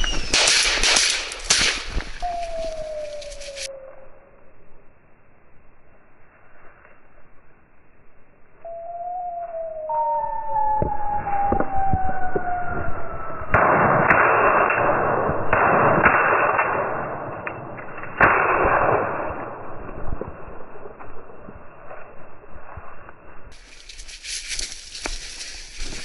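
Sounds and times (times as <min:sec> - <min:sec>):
falling whistle-like tone: 0:00.0 - 0:00.5, 0:02.2 - 0:04.5, 0:08.6 - 0:13.6
shotgun firing: 0:00.1 - 0:02.2, 0:13.5 - 0:17.5, 0:18.1 - 0:19.7
rustling brush: 0:22.6 - 0:26.0.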